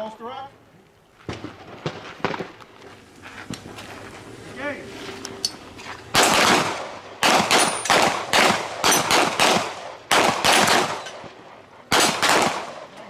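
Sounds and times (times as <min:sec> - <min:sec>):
handgun shots: 0:06.2 - 0:11.3, 0:11.9 - 0:12.8.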